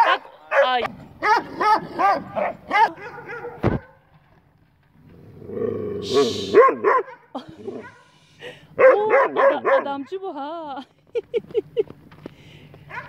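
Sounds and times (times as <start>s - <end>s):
dog barking: 0.0s - 4.0s, 6.5s - 8.1s, 8.8s - 10.1s
dog growling: 0.8s - 2.6s, 5.0s - 6.6s, 7.4s - 8.0s.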